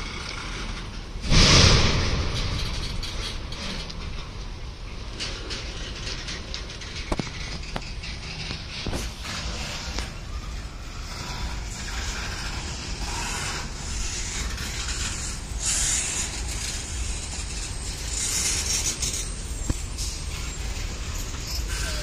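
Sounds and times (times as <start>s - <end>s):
train wheels rumbling on rail: 0.0s - 22.0s
metallic rattling: 0.6s - 22.0s
high hiss: 9.0s - 22.0s.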